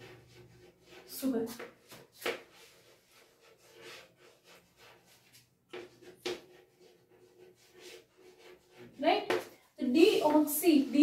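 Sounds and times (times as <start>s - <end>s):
chalk scratching on chalkboard: 0.0s - 11.0s.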